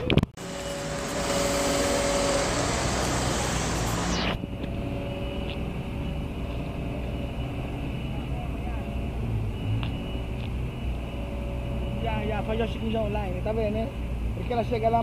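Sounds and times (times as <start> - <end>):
steady traffic noise: 0.0 - 15.0
vehicle passing nearby: 0.4 - 15.0.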